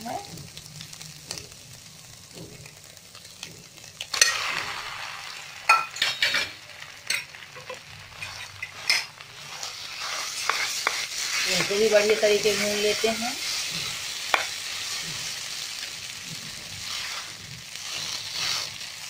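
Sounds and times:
food sizzling in a pan: 0.0 - 19.0
spatula scraping and tapping a pan: 5.7 - 15.3.

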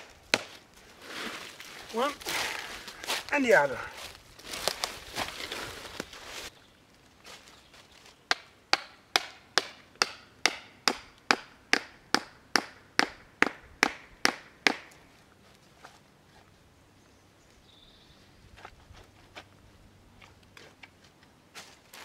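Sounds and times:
hatchet striking wood: 8.3 - 15.0.

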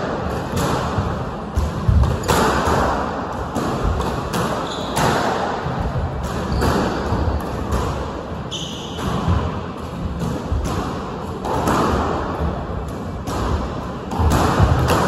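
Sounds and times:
squash ball smacking walls: 8.8 - 15.0.

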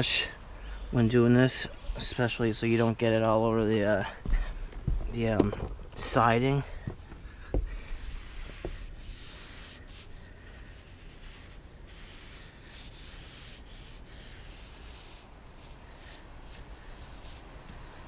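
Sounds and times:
paintbrush strokes on surface: 0.0 - 4.0, 7.8 - 18.0.

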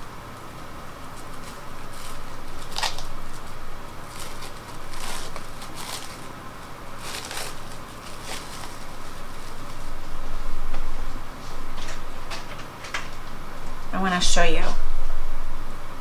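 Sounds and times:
plastic wrapping crinkling: 0.9 - 10.6.

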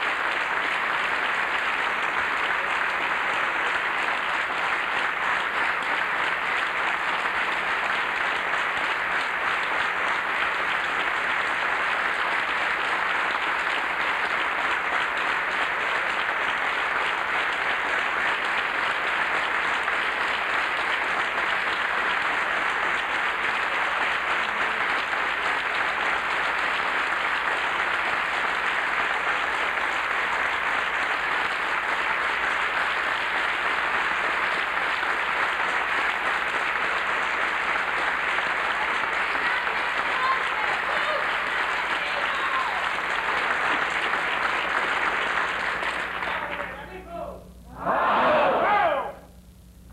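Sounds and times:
audience applause: 0.0 - 47.1.

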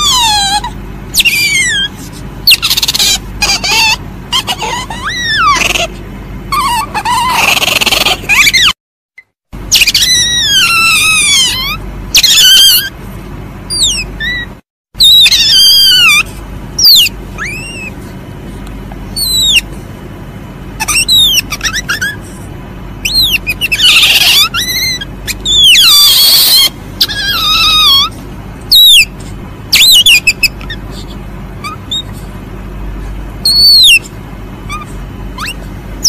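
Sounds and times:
palm civet squeaky calls: 0.0 - 8.8, 9.7 - 13.0, 13.7 - 18.0, 19.1 - 19.8, 20.8 - 22.4, 23.0 - 32.3, 33.4 - 35.7
hissing screeches: 23.0 - 28.9.

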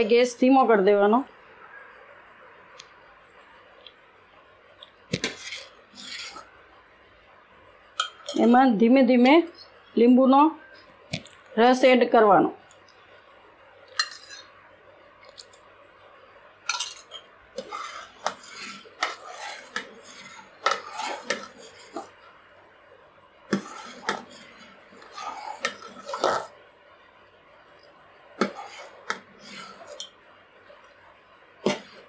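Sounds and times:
ladle scraping steel pot: 5.1 - 6.6, 8.0 - 8.6, 14.0 - 14.5, 16.7 - 22.3, 23.5 - 26.6, 28.4 - 30.2, 31.6 - 32.0.

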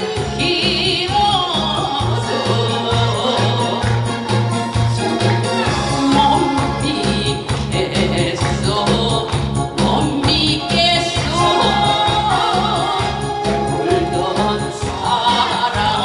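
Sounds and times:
amplified accompaniment with beat: 0.0 - 16.0
woman singing into a microphone: 0.0 - 16.0.

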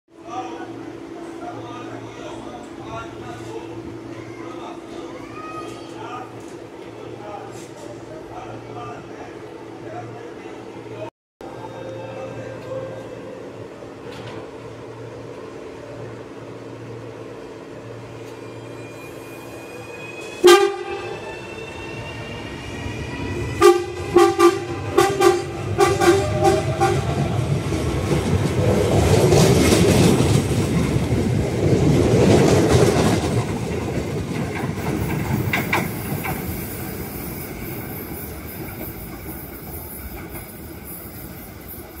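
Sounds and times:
train rumbling on track: 0.1 - 42.0
electric train humming: 8.0 - 42.0
train horn toots: 20.4 - 21.3, 23.6 - 27.2.

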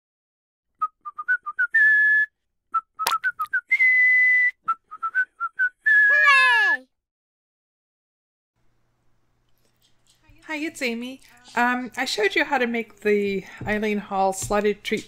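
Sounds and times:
whistled tune: 0.8 - 6.8.

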